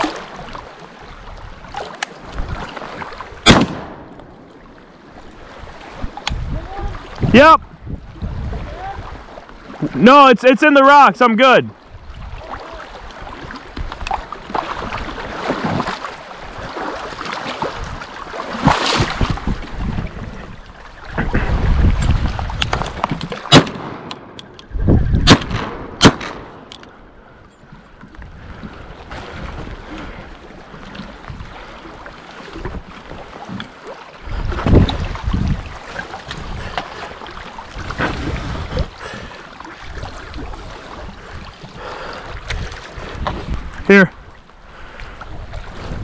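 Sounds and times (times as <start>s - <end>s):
wind buffeting microphone: 0.0s - 10.0s, 11.8s - 46.0s
waves lapping against boulders: 0.0s - 46.0s
sharp cracks: 3.4s - 4.4s, 22.6s - 26.8s.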